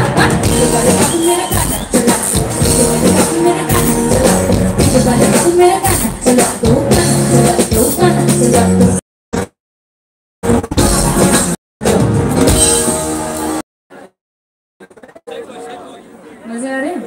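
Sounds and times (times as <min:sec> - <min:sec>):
live band music: 0:00.0 - 0:09.0, 0:10.5 - 0:13.6.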